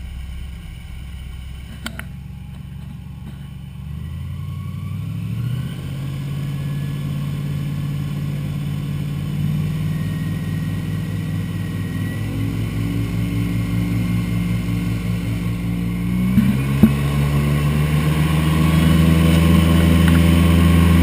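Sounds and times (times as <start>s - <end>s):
airboat engine and propeller: 8.8s - 21.0s.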